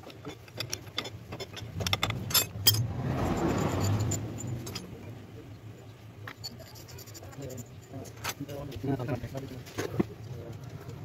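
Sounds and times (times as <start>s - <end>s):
metal tools clinking: 0.0s - 5.1s, 5.8s - 8.8s
vehicle passing: 1.8s - 5.9s.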